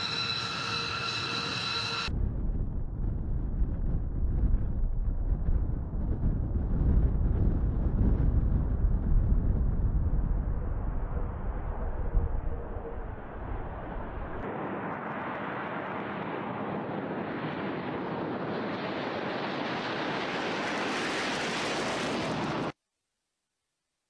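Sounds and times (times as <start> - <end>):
jet engine roar: 0.0 - 2.2, 9.5 - 22.8.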